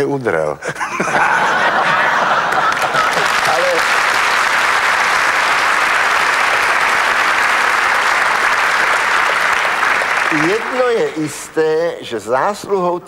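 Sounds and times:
large audience applauding: 0:01.9 - 0:11.6.

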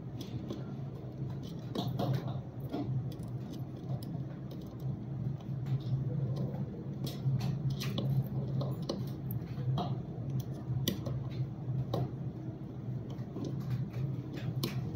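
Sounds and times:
steady low hum: 0:00.0 - 0:14.9.

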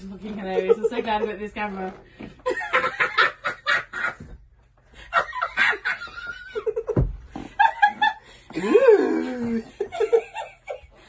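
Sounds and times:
woman laughing: 0:00.5 - 0:01.5, 0:02.4 - 0:04.4, 0:05.0 - 0:11.0
dull thump: 0:06.9 - 0:07.5.

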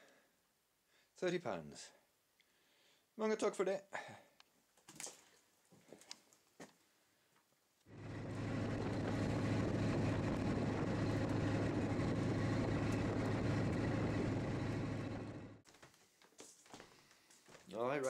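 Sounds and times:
motorboat engine humming: 0:07.9 - 0:15.6.

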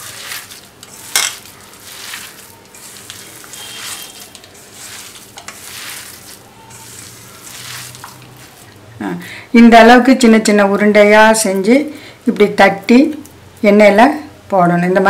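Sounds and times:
hand kneading damp dough: 0:00.0 - 0:08.9.

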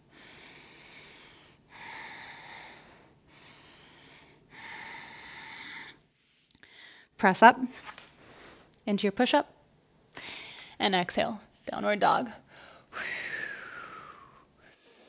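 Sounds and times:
woman breathing slowly: 0:00.0 - 0:07.2, 0:08.2 - 0:08.8, 0:10.1 - 0:10.8, 0:12.4 - 0:15.0.

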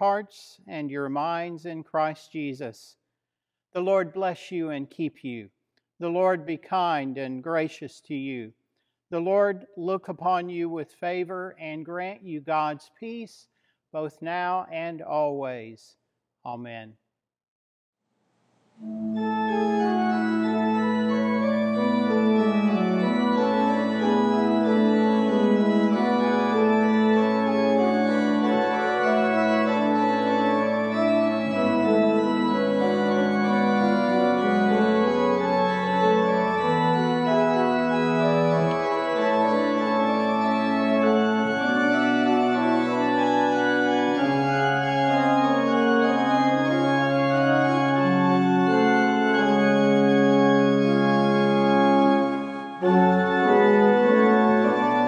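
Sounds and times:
organ playing held chords: 0:18.8 - 0:55.0.

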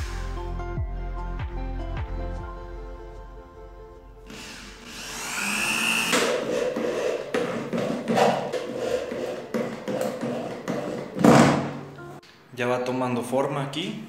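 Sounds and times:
electric drill motor whining: 0:04.3 - 0:07.2.

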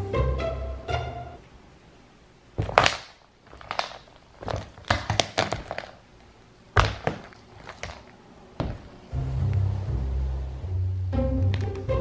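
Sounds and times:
candles cracking under a shoe: 0:02.6 - 0:06.0, 0:06.8 - 0:08.2.

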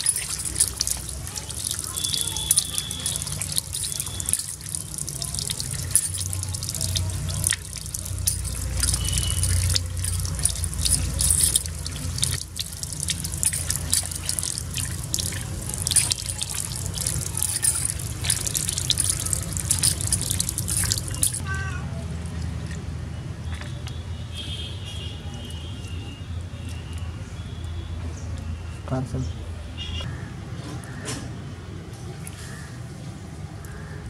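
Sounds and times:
fish scrubbed on wet concrete: 0:00.0 - 0:21.4.

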